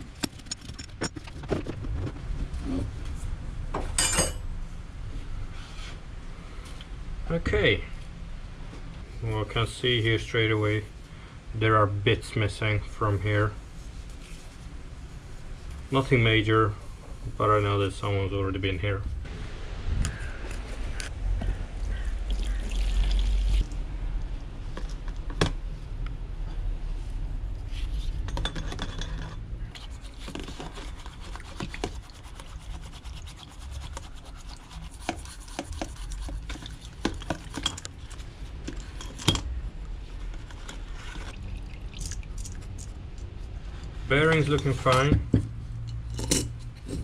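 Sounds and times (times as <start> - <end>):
bristle brush scrubbing: 29.8 - 38.6.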